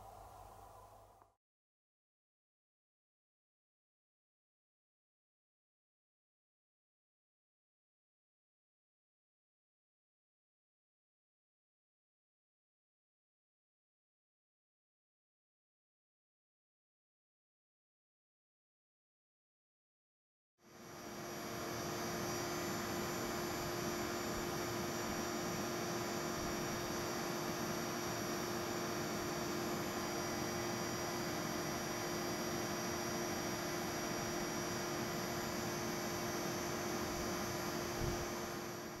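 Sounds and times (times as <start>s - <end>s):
steady hum tone: 0.0s - 1.3s, 20.7s - 39.0s.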